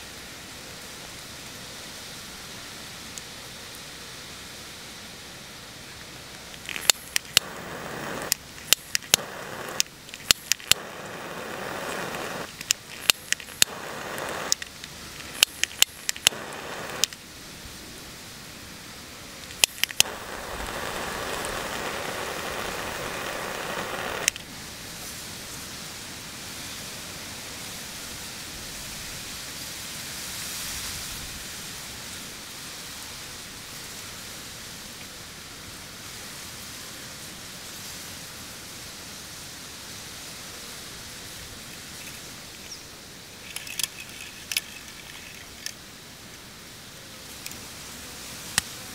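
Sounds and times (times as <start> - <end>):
background hiss: 0.0 - 48.9
lighter flame hissing: 6.4 - 17.4, 19.4 - 24.4
lighter clicking: 6.6 - 17.2, 19.5 - 24.4.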